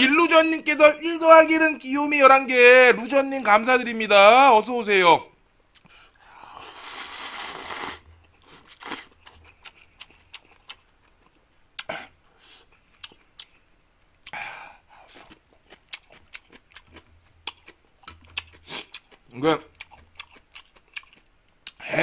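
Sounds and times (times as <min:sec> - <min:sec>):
open-mouthed chewing: 0:05.7 - 0:22.0.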